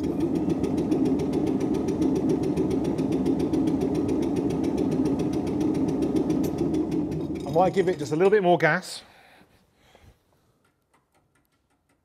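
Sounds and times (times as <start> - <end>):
boat engine turning over: 0.0 - 8.0.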